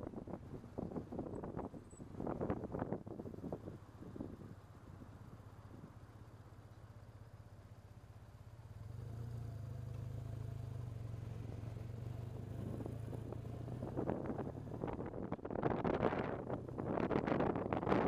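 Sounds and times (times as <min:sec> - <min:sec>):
wind buffeting microphone: 0:00.0 - 0:04.6, 0:12.6 - 0:18.0
motorcycle engine running: 0:03.4 - 0:18.0.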